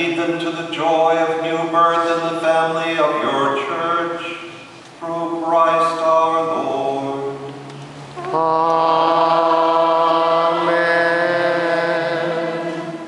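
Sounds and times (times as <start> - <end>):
person chanting long notes: 8.2 - 13.0.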